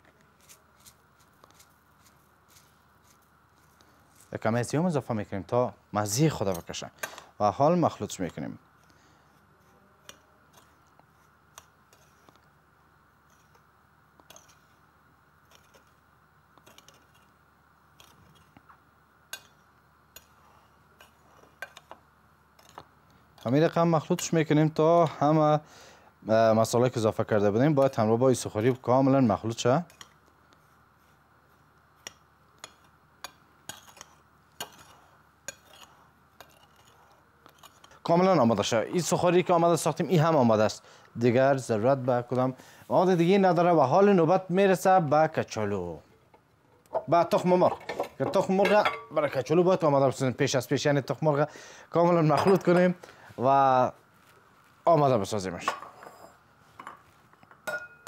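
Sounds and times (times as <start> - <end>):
steady hum: 0.0 - 58.0
spoon clinking in ceramic bowl: 56.8 - 58.0.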